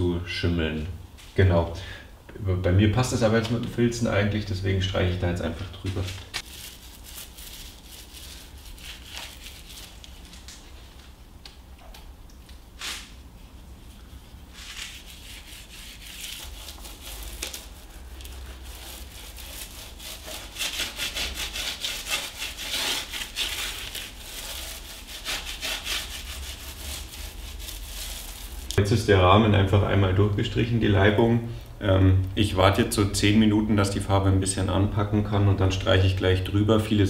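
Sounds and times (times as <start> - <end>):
paint roller rubbing on plaster: 14.2 - 28.8.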